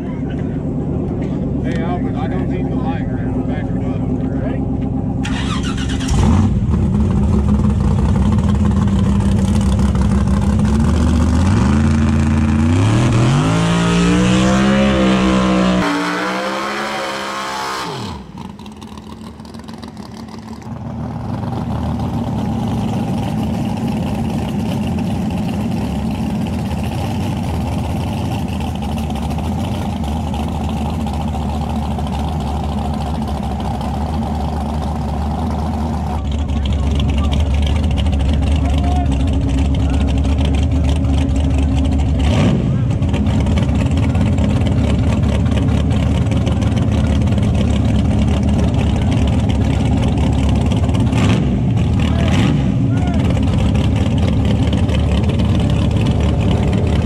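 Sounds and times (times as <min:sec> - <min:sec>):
car engine during burnout: 0:00.0 - 0:57.0
race car engine revving: 0:00.0 - 0:57.0.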